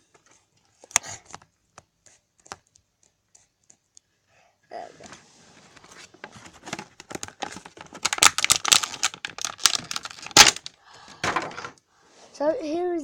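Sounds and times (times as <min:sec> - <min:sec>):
plastic packaging crinkling and tearing: 0:06.0 - 0:10.7.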